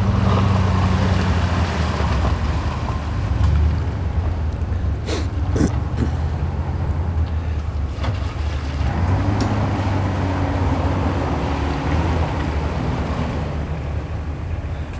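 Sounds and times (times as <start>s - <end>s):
car engine under load: 0.0s - 14.9s.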